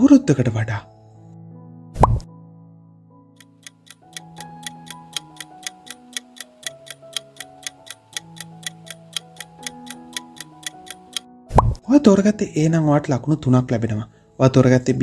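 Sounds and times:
soft background music: 0.0 - 15.0
timer ticking: 3.4 - 11.2.

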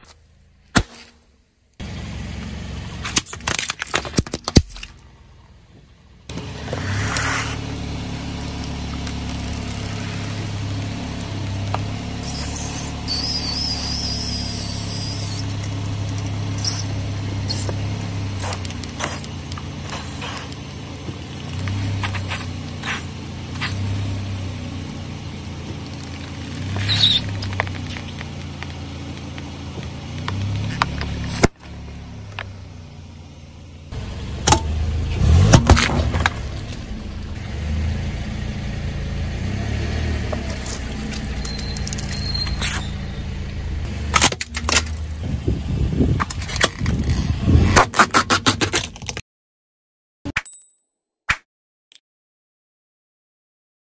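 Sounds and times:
car engine idling: 0.0 - 47.7
tyre crushing soft object: 0.7 - 1.2
plastic bottle crackling and creaking: 40.5 - 43.0, 46.2 - 49.2.

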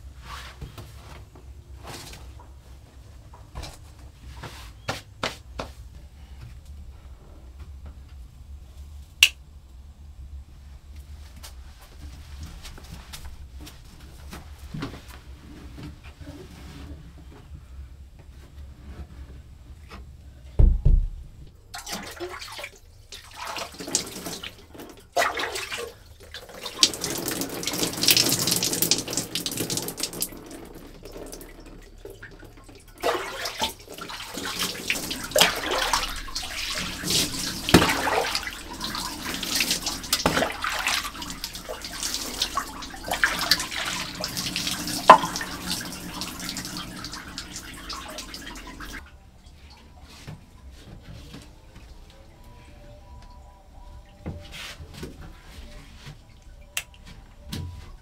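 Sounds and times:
low thump: 20.6 - 21.5
water pouring and splashing: 21.7 - 49.7.

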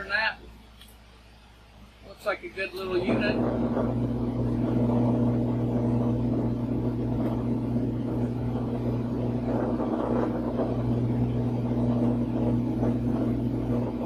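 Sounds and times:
drill press motor humming: 2.8 - 14.0
workbench vibrating: 3.0 - 14.0.

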